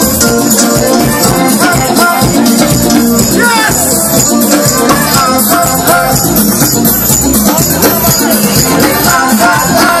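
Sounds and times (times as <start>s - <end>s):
high percussion rhythm: 0.0s - 10.0s
live band playing: 0.0s - 10.0s
person singing: 0.5s - 6.6s, 7.4s - 10.0s.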